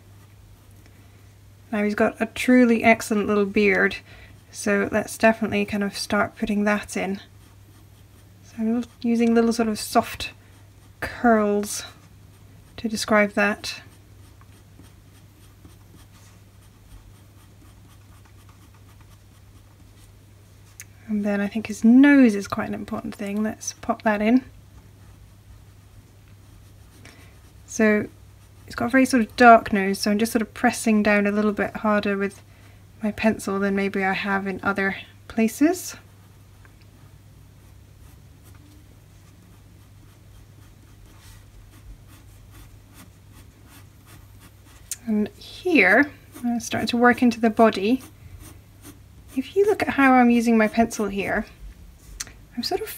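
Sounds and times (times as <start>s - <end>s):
low steady hum: 0.0s - 52.9s
pencil scratching on paper: 2.3s - 20.2s, 25.0s - 32.0s, 37.6s - 44.9s, 45.8s - 51.6s.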